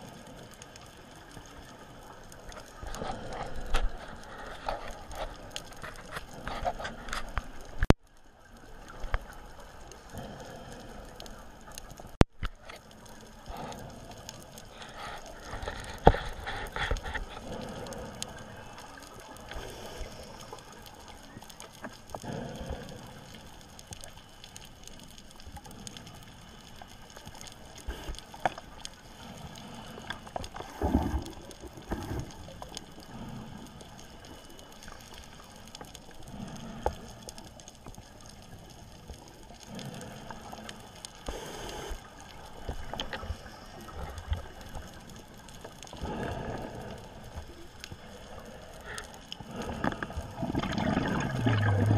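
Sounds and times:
steady hiss: 0.0 - 51.9
diver breathing underwater: 13.4 - 20.9, 21.8 - 23.8, 39.6 - 45.2, 45.8 - 51.9.

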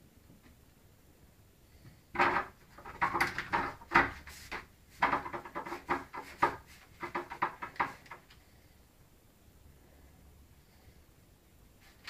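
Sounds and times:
letterbox flap rattling: 2.2 - 4.2.

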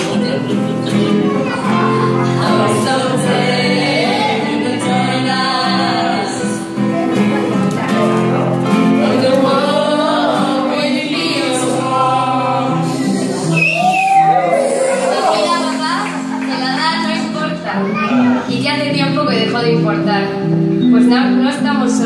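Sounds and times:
woman singing: 0.0 - 7.0, 8.9 - 13.6
guitar chords: 0.0 - 22.0
keyboard chords: 0.0 - 22.0
man singing: 7.6 - 13.6.

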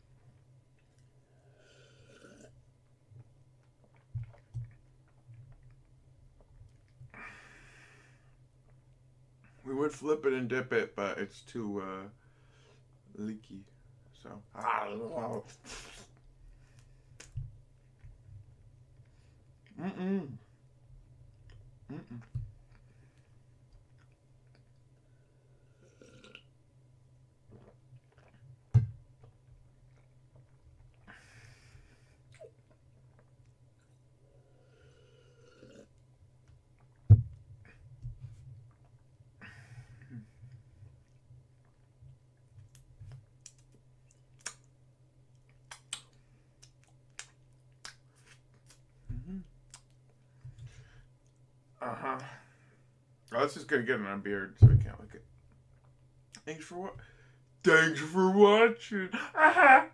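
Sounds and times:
faint low hum: 0.0 - 59.9
person humming: 19.7 - 20.5, 21.9 - 22.4, 49.1 - 49.5
drinking from plastic cup: 25.7 - 26.5, 34.3 - 36.0
chewing and mouth clicks: 42.6 - 44.7, 45.3 - 48.9, 49.6 - 50.2
lip smacking and finger licking: 45.4 - 48.9.

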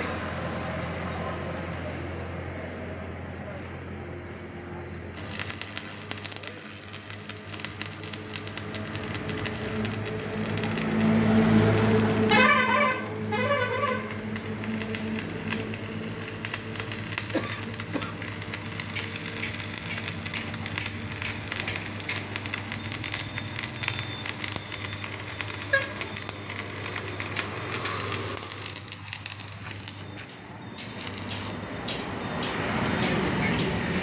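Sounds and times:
welding arc crackling: 4.9 - 31.6.

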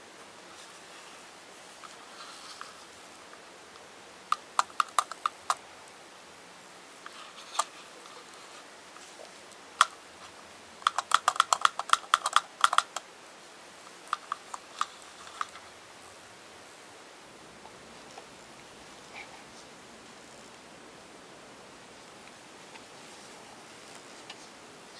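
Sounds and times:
plastic toy clicking and tapping: 4.3 - 5.6, 7.4 - 7.7, 9.8 - 10.0, 10.8 - 13.1, 13.9 - 15.6.

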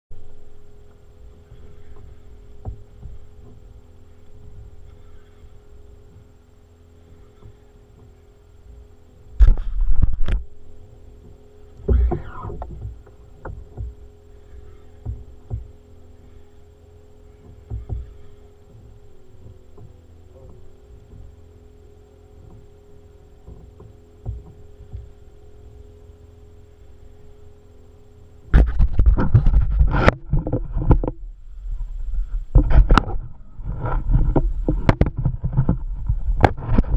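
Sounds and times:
steady hum: 0.1 - 36.9
knocks and rubbing on camera: 11.2 - 14.0, 17.4 - 21.4, 23.4 - 25.1, 28.5 - 31.2, 32.5 - 36.9.

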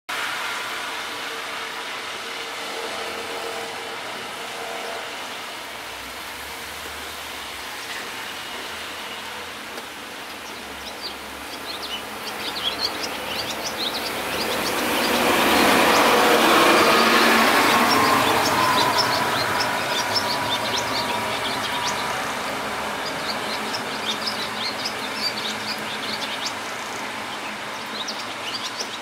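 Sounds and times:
rushing noise: 0.1 - 29.0
steady rain: 0.1 - 29.0
bird chirping: 10.3 - 29.0.

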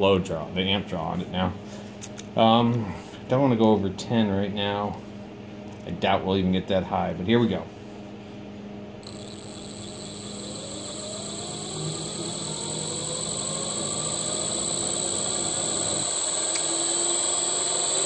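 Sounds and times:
electric motor spinning up: 9.0 - 18.0
steady high whine: 9.0 - 18.0.

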